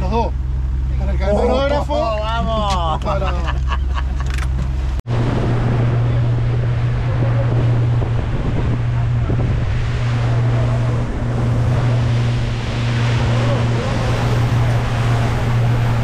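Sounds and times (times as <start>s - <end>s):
boat engine humming: 0.0s - 16.0s
water rushing past hull: 0.0s - 16.0s
wind buffeting microphone: 5.1s - 16.0s.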